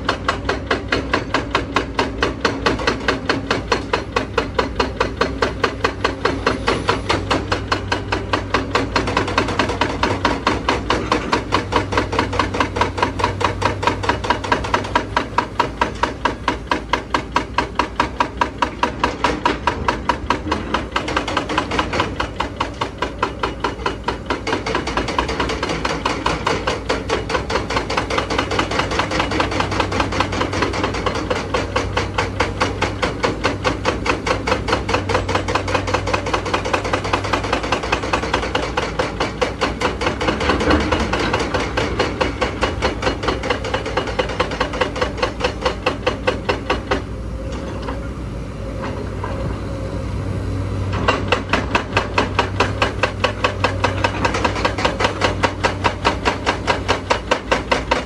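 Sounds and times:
hydraulic breaker pounding rock: 0.0s - 48.1s, 50.9s - 58.0s
diesel engine running: 45.9s - 57.9s.

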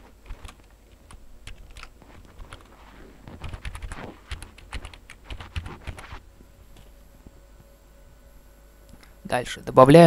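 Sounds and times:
computer keyboard typing: 0.3s - 2.7s, 3.4s - 6.1s.

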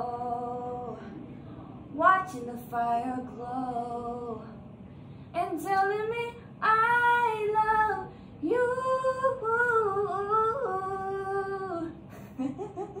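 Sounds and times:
woman singing unaccompanied: 0.0s - 1.1s, 2.0s - 4.6s, 5.4s - 12.0s.

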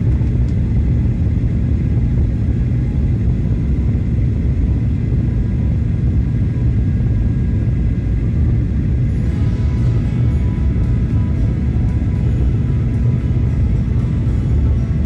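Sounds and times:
engine and airflow rumble: 0.0s - 15.0s
faint whine tones: 2.0s - 15.0s.

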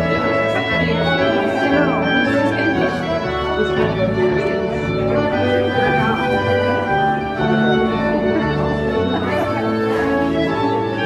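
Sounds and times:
instrumental music: 0.0s - 11.0s.

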